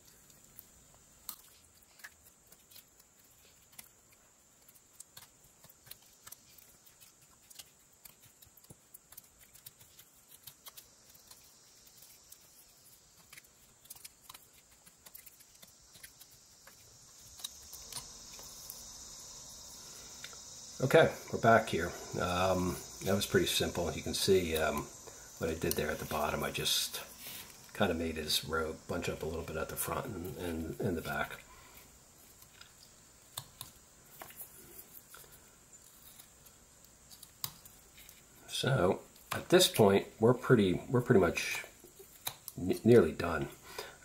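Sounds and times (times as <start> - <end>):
steady hiss: 0.0 - 44.0.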